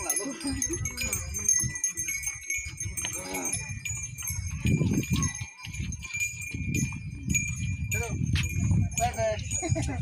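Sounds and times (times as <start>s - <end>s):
metallic clinks: 0.0s - 10.0s
small bells jingling: 0.0s - 10.0s
men calling out: 3.1s - 3.7s.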